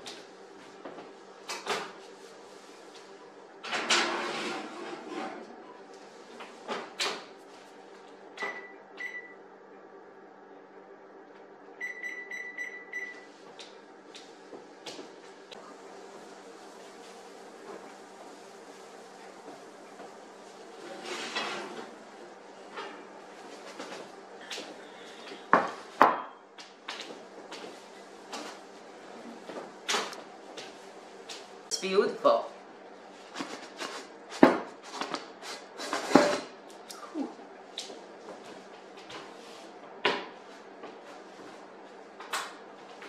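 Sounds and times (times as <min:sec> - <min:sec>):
oven keypad beeps: 0:08.4 - 0:09.4, 0:11.8 - 0:13.3.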